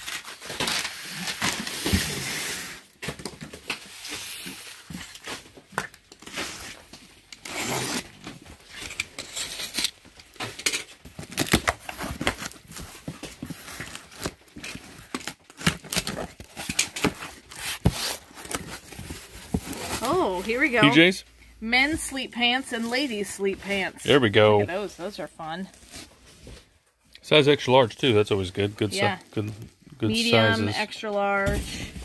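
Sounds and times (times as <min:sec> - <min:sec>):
box cutter slitting packing tape: 0:06.2 - 0:12.6.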